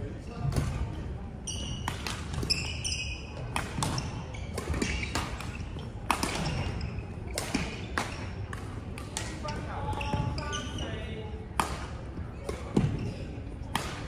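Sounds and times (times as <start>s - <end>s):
shoes squeaking on wooden floor: 1.4s - 5.8s, 9.4s - 11.0s
badminton rackets hitting shuttlecocks: 1.5s - 10.3s, 11.6s - 14.0s.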